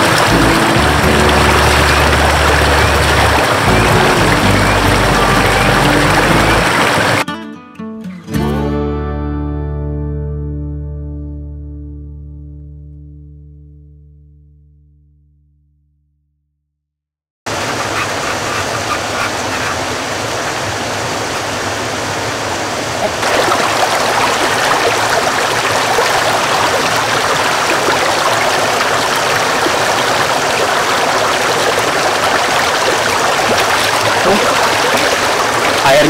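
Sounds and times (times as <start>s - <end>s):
stream gurgling over rocks: 0.0s - 7.2s, 17.5s - 36.0s.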